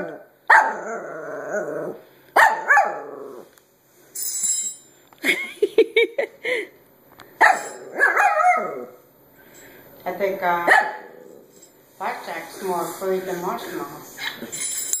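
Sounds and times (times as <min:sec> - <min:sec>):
small puppy barking and yapping: 0:07.4 - 0:08.9.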